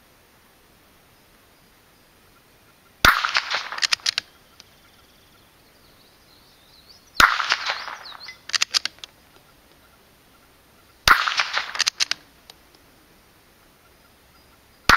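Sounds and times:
rifle shots: 3.0s - 4.3s, 7.2s - 9.0s, 11.0s - 12.2s
sharp ticks: 3.1s - 4.7s, 7.2s - 9.8s, 11.1s - 12.8s.

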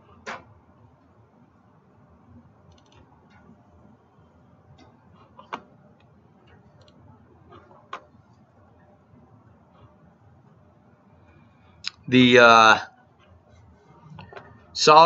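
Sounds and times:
low room noise: 0.0s - 15.0s
computer mouse clicking: 2.6s - 3.5s, 4.8s - 8.4s.

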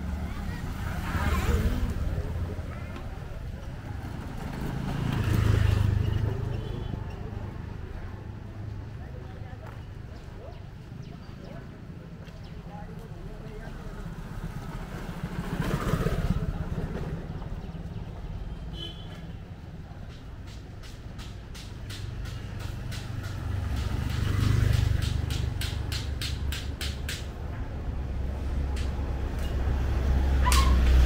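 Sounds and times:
engine approaching: 0.0s - 6.5s, 7.2s - 18.4s
motorcycle passing: 0.0s - 8.9s, 13.7s - 18.1s, 22.2s - 26.2s.

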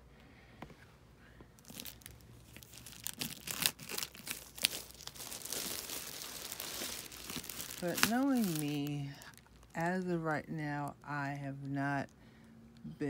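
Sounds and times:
plastic wrapping crinkling and tearing: 1.6s - 9.8s.

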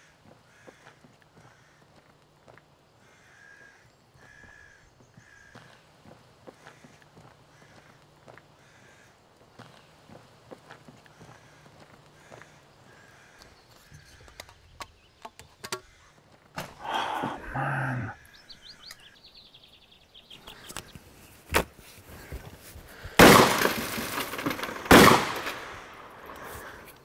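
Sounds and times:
shotgun blasts echoing: 23.2s - 26.3s.

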